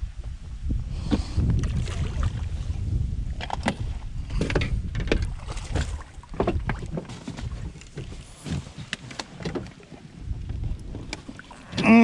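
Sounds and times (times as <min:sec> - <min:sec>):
wind rumble on microphone: 0:00.0 - 0:12.0.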